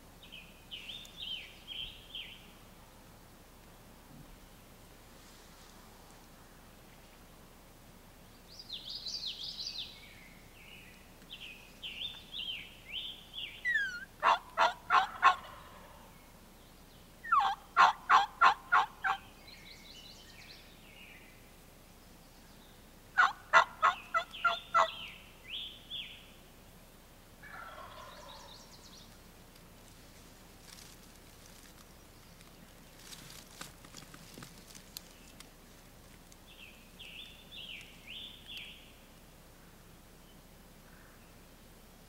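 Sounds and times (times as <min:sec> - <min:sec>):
small bird chirping: 0:11.3 - 0:14.1
turkey gobbling: 0:13.6 - 0:16.1, 0:17.2 - 0:19.3, 0:23.2 - 0:25.1, 0:27.4 - 0:28.6.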